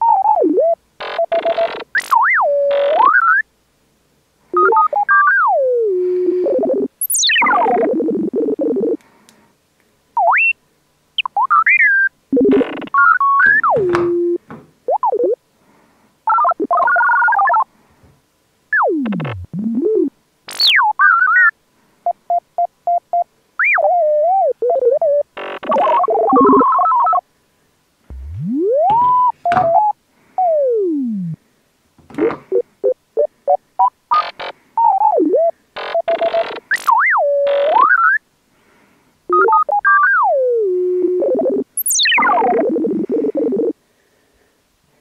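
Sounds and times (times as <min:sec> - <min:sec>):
short synthesizer beeps: 0:06.4 - 0:08.0, 0:23.6 - 0:27.2, 0:28.1 - 0:31.4, 0:33.2 - 0:38.2, 0:39.3 - 0:43.7
synthesizer chords: 0:28.1 - 0:29.2
synthesizer tones sliding in pitch: 0:28.1 - 0:29.3.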